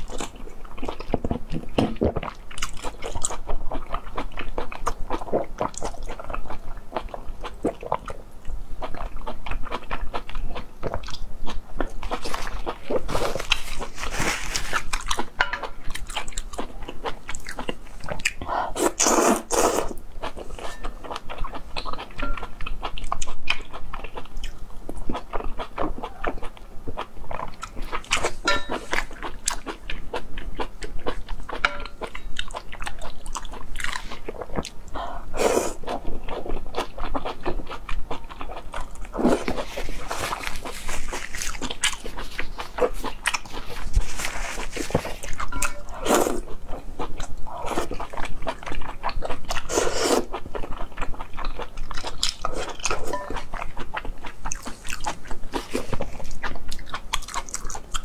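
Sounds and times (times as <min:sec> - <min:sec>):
wet chewing: 0:00.0 - 0:08.2, 0:08.8 - 0:58.0
loud slurp: 0:49.7 - 0:50.3.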